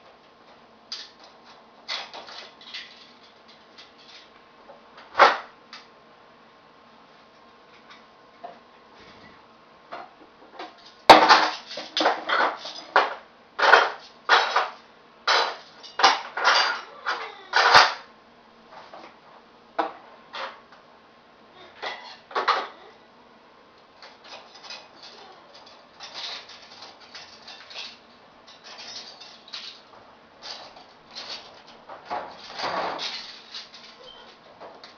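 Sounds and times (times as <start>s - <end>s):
metal cutlery clattering: 1.9s - 4.3s, 10.7s - 18.1s, 24.0s - 34.9s.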